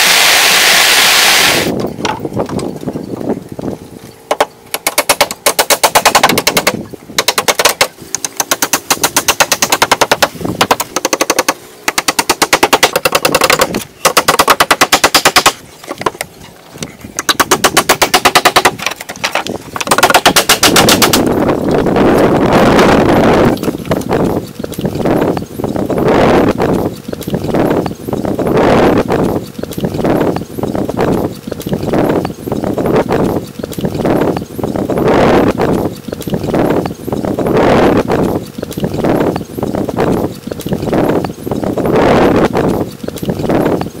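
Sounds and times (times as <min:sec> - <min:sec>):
hand tool clicking rapidly: 0:04.3 - 0:16.2, 0:16.8 - 0:21.4.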